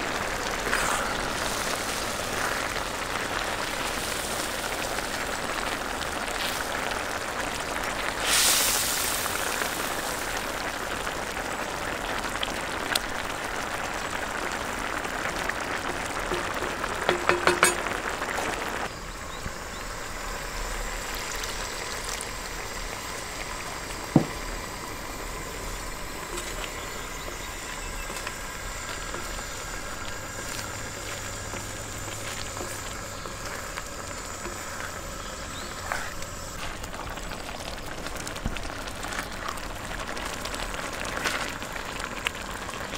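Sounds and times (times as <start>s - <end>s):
louder hiss: 0.0s - 5.5s, 6.3s - 10.7s
sauce sizzling and bubbling: 0.0s - 42.9s.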